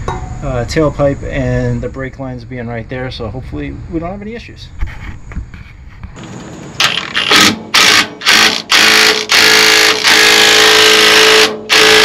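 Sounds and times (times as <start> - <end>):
power tool running in bursts: 6.2 - 12.0.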